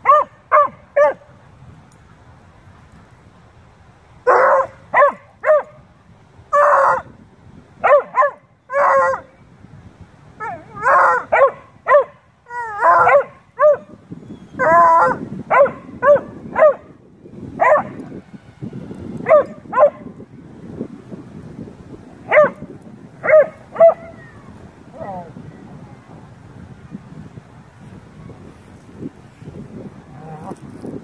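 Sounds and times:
dogs barking and yodeling: 4.3s - 5.7s, 7.8s - 9.3s, 10.4s - 13.9s, 14.6s - 16.8s, 23.2s - 24.3s.

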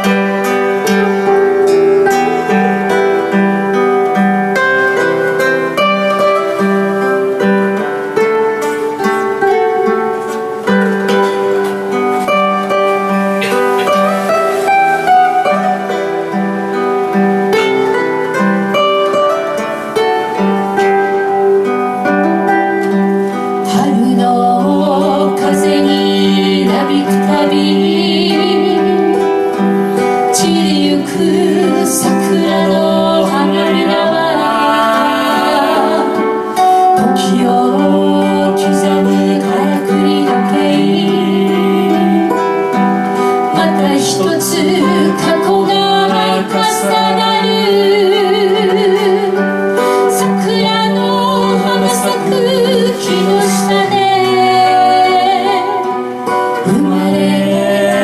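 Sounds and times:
acoustic guitars strummed: 0.0s - 58.0s
men singing together: 56.6s - 58.0s.

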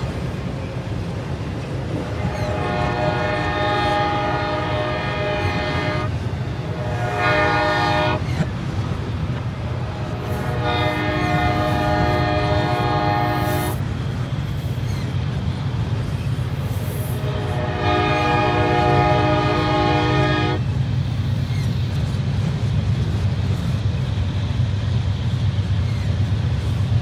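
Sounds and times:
freight train rumbling: 0.0s - 27.0s
locomotive air horn in reverse: 2.3s - 8.3s, 10.0s - 13.8s, 17.2s - 20.6s.

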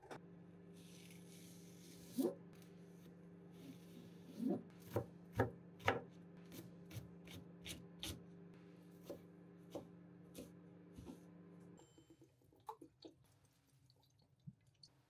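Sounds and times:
knife chopping on cutting board: 4.8s - 8.2s.

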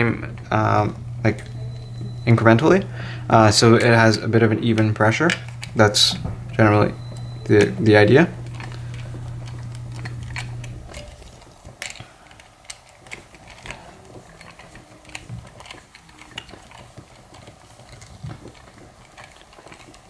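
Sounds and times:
low hum: 0.0s - 12.2s.

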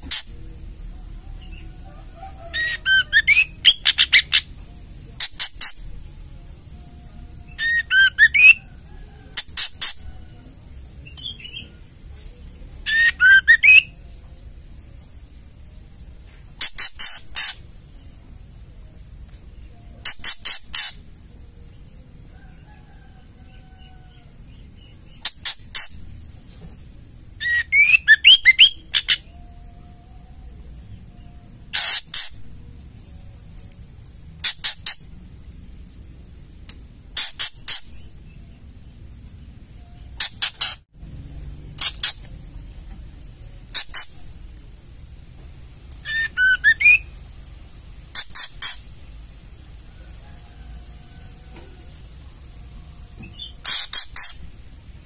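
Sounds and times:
bird whistled notes: 7.5s - 8.7s, 12.9s - 14.0s, 27.4s - 29.3s, 46.0s - 47.1s.

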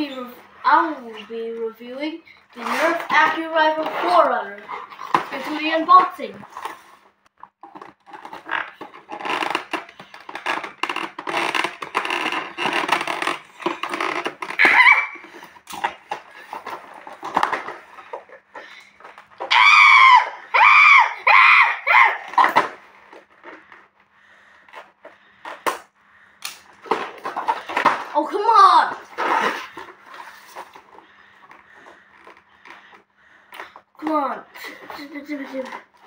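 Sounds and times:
cardboard rustling and crackling: 2.5s - 19.6s, 26.8s - 33.0s
short loud squeals: 14.4s - 15.4s.

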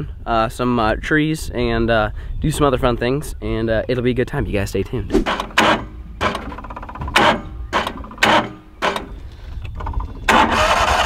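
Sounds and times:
outboard motor clicks and clunks: 5.3s - 11.0s.

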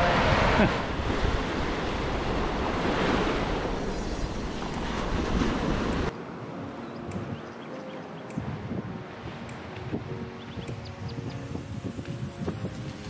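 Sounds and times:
small waves washing on shore: 0.0s - 6.5s
wind buffeting microphone: 8.3s - 13.0s.

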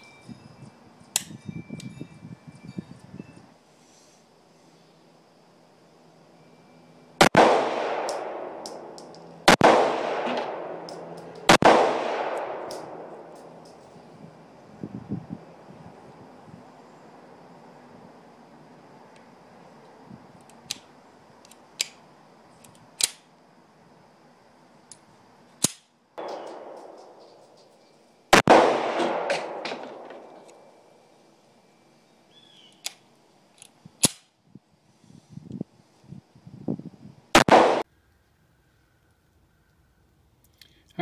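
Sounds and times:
sharp metallic pistol clicks: 1.1s - 1.9s, 7.3s - 13.9s, 20.4s - 22.0s, 22.6s - 23.3s, 25.6s - 27.8s, 32.7s - 34.3s
pistol shots echoing: 7.2s - 13.5s, 26.2s - 27.6s, 28.3s - 30.7s, 37.4s - 37.8s.

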